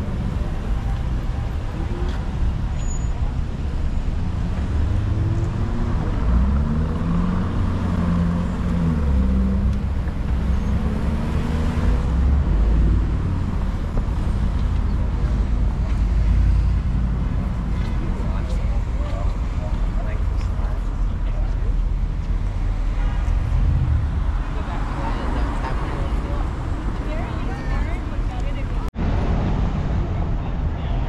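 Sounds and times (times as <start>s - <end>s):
cars passing with low rumble: 0.0s - 31.0s
people talking in background: 14.8s - 31.0s.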